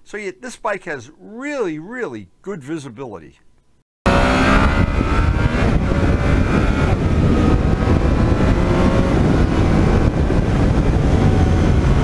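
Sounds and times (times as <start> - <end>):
motorcycle engine running: 4.1 - 12.0.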